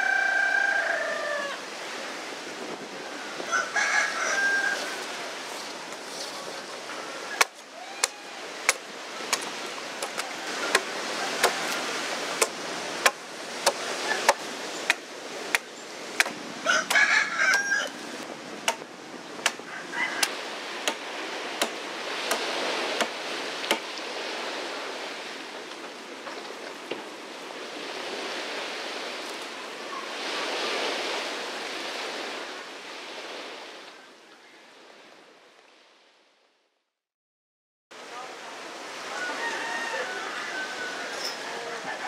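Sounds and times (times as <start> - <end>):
rooster crowing: 0.0 - 1.7, 3.3 - 5.2, 16.6 - 18.0, 19.7 - 20.3, 39.0 - 42.0
blade chopping wood: 12.4 - 17.6, 18.6 - 19.6, 20.2 - 23.9.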